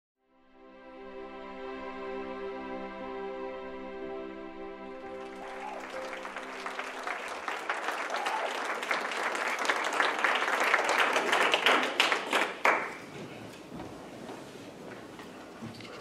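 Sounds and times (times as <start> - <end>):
congregation applauding: 5.0 - 13.4.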